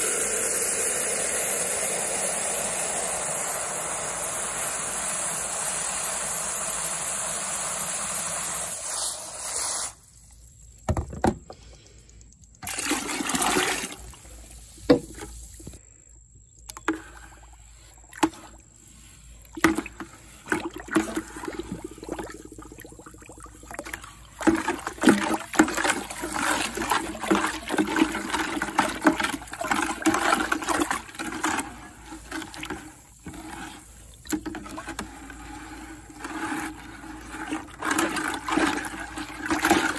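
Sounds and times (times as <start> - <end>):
hose water into plastic pitcher: 0.0 - 11.6, 12.6 - 15.8, 16.6 - 39.9
pipe knocking in bucket: 10.8 - 11.6
syrup sloshing in plastic bucket: 12.6 - 15.8, 16.6 - 39.9.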